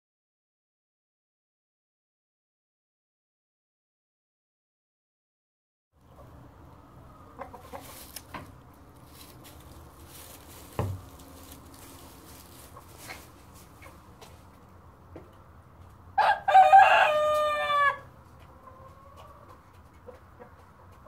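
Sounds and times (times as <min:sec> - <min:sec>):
hen clucking softly: 0:06.0 - 0:10.8, 0:11.4 - 0:14.6, 0:17.8 - 0:21.0
short thump: 0:10.6 - 0:11.4.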